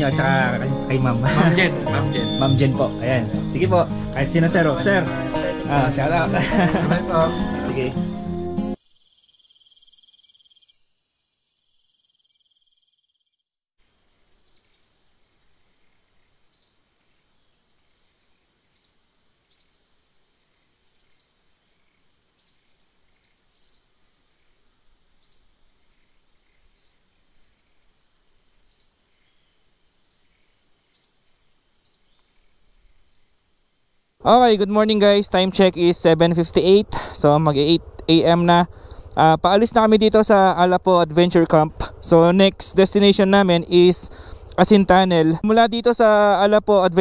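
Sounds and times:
background music: 0:00.0 - 0:08.8
insects chirping and trilling: 0:02.2 - 0:41.4.

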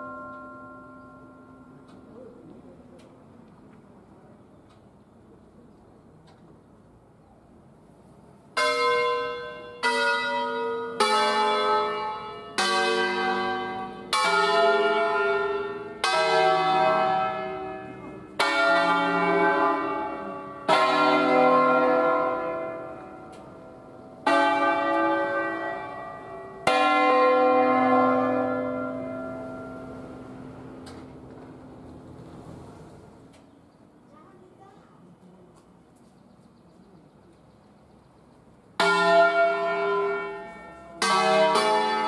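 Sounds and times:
church bells ringing: 0:00.0 - 0:02.2, 0:08.5 - 0:32.2, 0:38.8 - 0:42.0.

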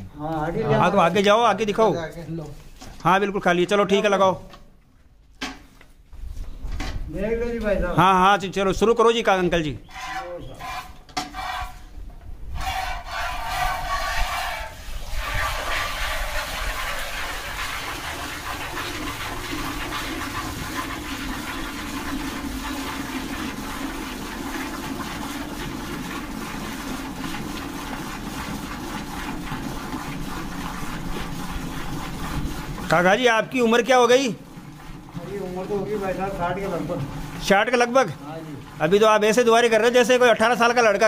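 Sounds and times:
milk squirting into a steel pail: 0:12.6 - 0:41.0.

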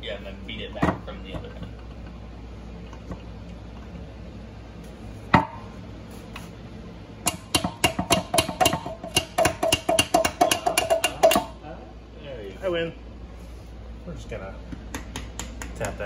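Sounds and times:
hammer striking metal: 0:07.3 - 0:11.5.

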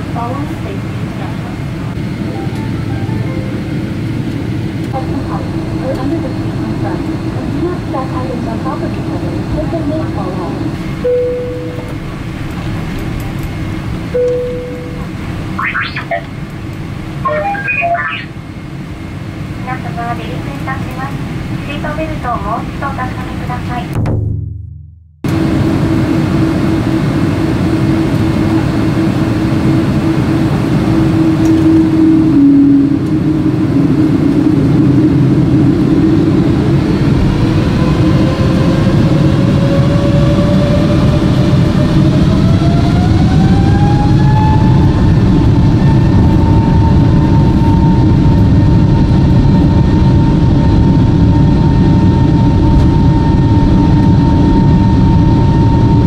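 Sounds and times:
high engine whine: 0:00.0 - 0:24.0, 0:25.3 - 0:56.0
jet engines spooling up: 0:11.8 - 0:19.6, 0:25.3 - 0:56.0.

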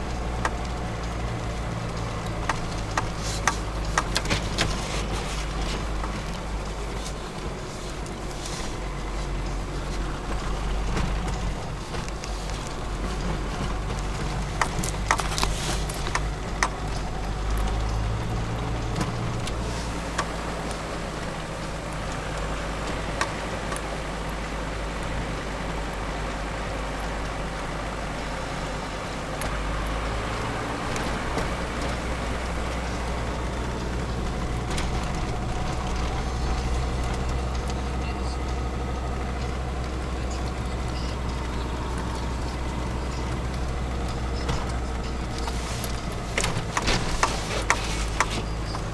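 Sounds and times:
car engine drone: 0:00.0 - 0:48.9
road and wind noise: 0:00.0 - 0:48.9
sharp clicks: 0:01.8 - 0:04.9, 0:13.9 - 0:20.8.

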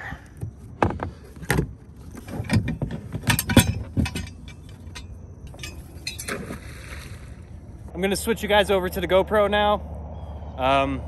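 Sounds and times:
metal anchor chain clanking: 0:02.0 - 0:06.6.

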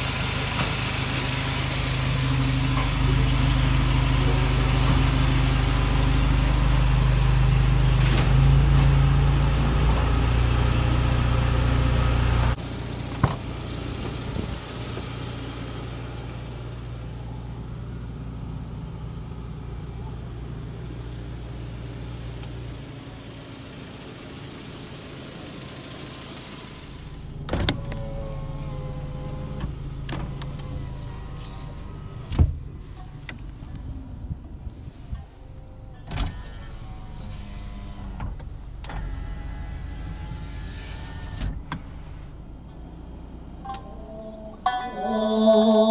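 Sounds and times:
truck engine idling: 0:00.0 - 0:40.4
power window motor whir: 0:27.4 - 0:33.6, 0:36.2 - 0:42.4.

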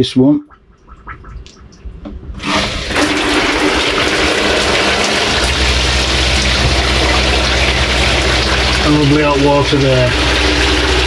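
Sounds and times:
low steady hum: 0:00.0 - 0:11.0
shower spraying water: 0:02.4 - 0:11.0.

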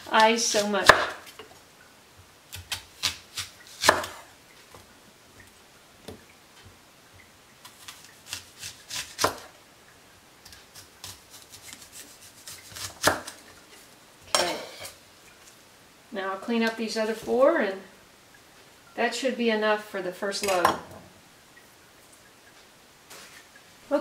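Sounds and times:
knife slicing onion on board: 0:00.0 - 0:01.4, 0:02.5 - 0:04.2, 0:07.6 - 0:09.5, 0:10.4 - 0:13.4.

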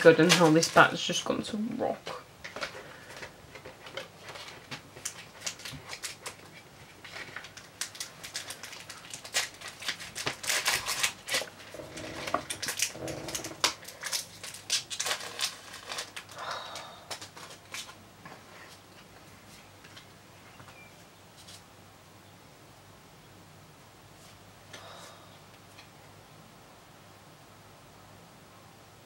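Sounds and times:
plastic packet crinkling: 0:02.4 - 0:18.0.

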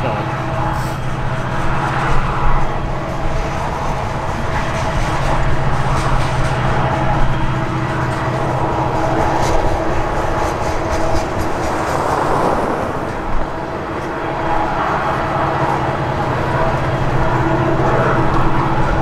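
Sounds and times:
heavy vehicle rumble: 0:00.0 - 0:19.0.

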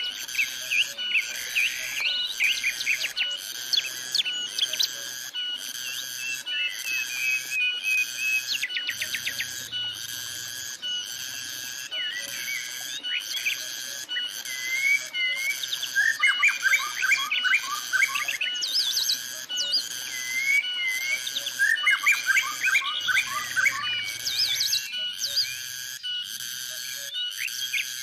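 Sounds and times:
cicadas droning: 0:00.0 - 0:28.0
songbirds chirping: 0:00.0 - 0:28.0.

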